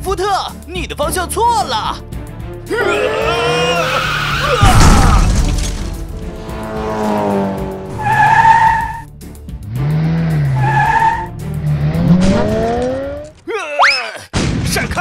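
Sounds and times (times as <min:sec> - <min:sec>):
music: 0:00.0 - 0:13.5
tyre screeches: 0:03.3 - 0:05.3, 0:08.0 - 0:09.0, 0:10.5 - 0:11.3.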